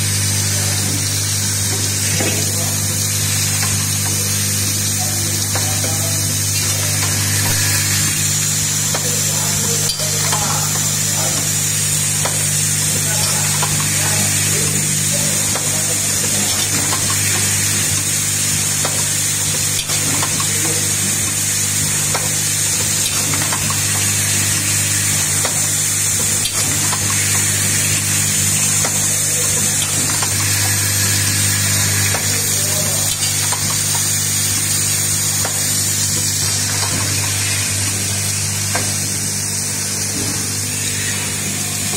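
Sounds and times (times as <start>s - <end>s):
machine low hum: 0.0s - 41.9s.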